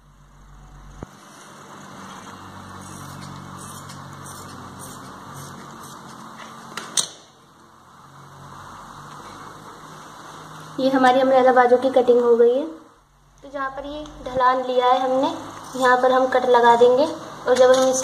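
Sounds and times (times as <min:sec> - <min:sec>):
steady background noise: 0:00.0 - 0:18.0.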